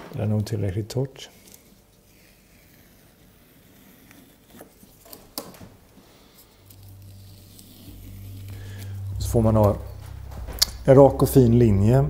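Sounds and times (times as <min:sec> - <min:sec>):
tape peeling off paper: 0:01.4 - 0:08.9.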